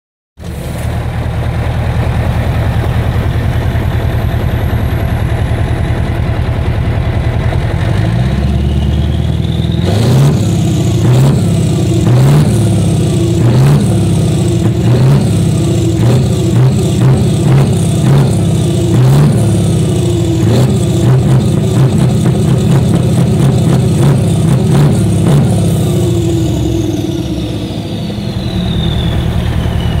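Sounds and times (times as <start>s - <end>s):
diesel truck engine revving: 0.4s - 30.0s
turbo whistle: 26.6s - 30.0s.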